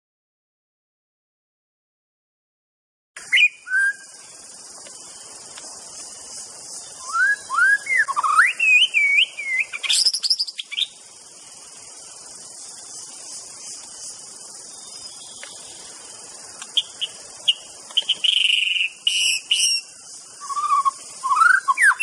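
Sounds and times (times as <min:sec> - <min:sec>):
bird singing whistled notes: 0:03.2 - 0:04.5, 0:06.8 - 0:11.1, 0:16.7 - 0:22.0
steady high hiss: 0:03.2 - 0:22.0.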